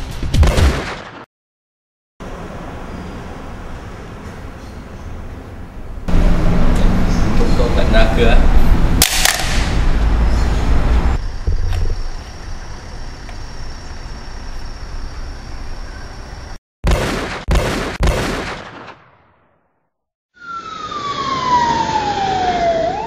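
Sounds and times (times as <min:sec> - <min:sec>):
gunshots: 0:00.4 - 0:01.3, 0:09.0 - 0:09.8, 0:16.8 - 0:19.4.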